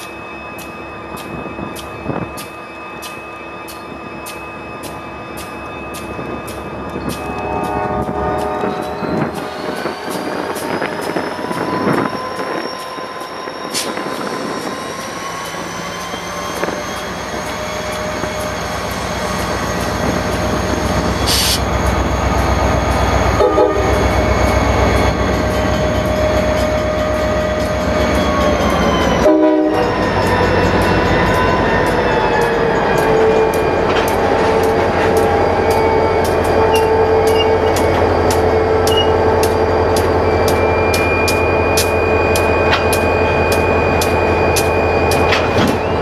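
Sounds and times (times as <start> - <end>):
low train rumble: 0.0 - 46.0
train wheels squealing: 0.0 - 46.0
air hiss: 21.3 - 21.6.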